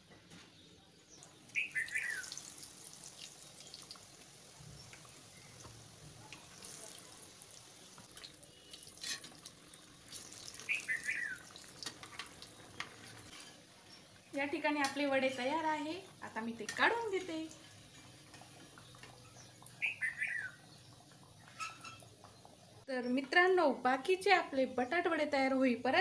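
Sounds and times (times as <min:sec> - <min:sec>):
bird chirping: 0:00.6 - 0:02.5, 0:10.6 - 0:11.7, 0:18.7 - 0:23.2
food deep-frying in hot oil: 0:01.1 - 0:22.9.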